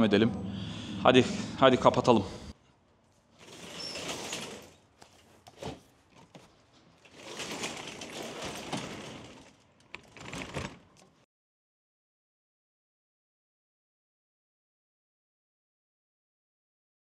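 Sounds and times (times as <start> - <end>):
roll-up door rattling: 3.4 - 5.8, 7.0 - 11.2.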